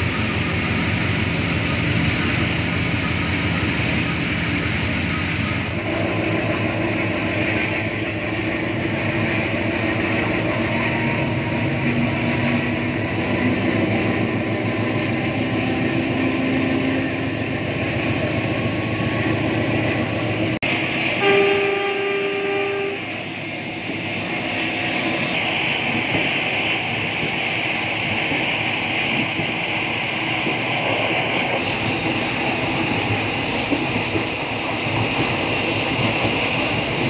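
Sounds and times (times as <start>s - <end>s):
diesel locomotive engine running: 0.0s - 37.0s
train horn: 21.2s - 23.3s.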